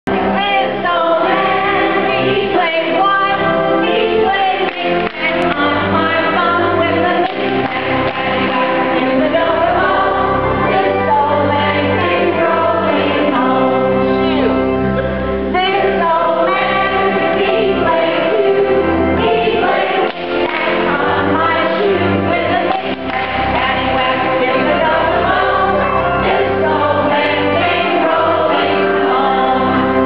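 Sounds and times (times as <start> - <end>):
people singing in unison: 0.1 - 14.7, 15.5 - 30.0.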